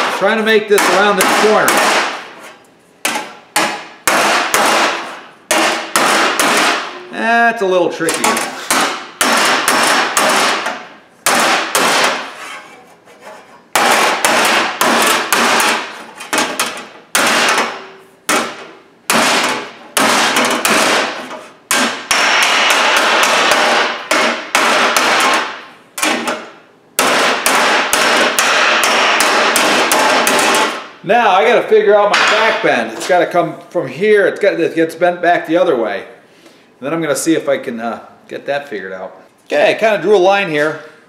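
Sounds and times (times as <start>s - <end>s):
hammer striking sheet steel: 0.0s - 2.4s, 3.0s - 7.1s, 8.0s - 12.8s, 13.7s - 31.0s, 32.1s - 32.7s.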